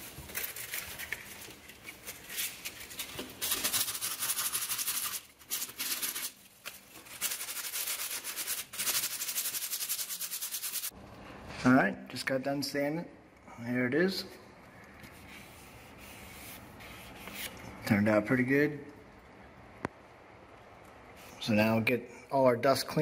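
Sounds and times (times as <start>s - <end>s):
sandpaper rasping by hand: 3.4s - 6.3s, 7.0s - 10.9s.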